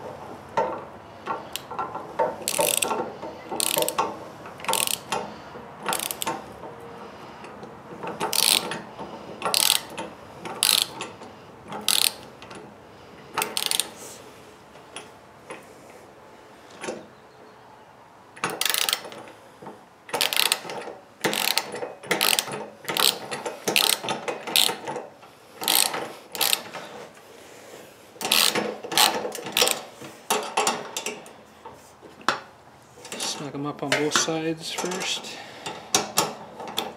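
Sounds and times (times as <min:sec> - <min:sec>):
ratchet wrench clicking: 0:00.6 - 0:06.5, 0:08.0 - 0:08.8, 0:09.4 - 0:11.1, 0:11.7 - 0:12.6, 0:13.4 - 0:14.0, 0:18.4 - 0:19.3, 0:20.1 - 0:26.8, 0:28.2 - 0:31.2.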